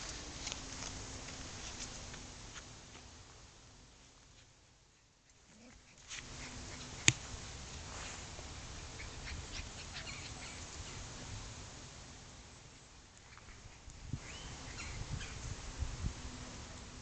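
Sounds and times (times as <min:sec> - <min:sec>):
puppies squeaking and yipping: 0:08.9 - 0:11.0.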